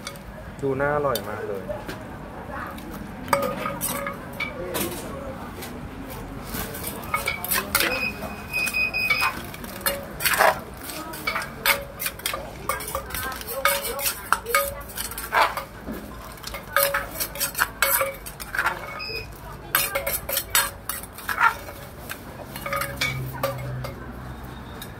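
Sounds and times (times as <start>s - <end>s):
metal spoon clinking in mortar: 3.3s - 4.6s, 6.8s - 24.1s.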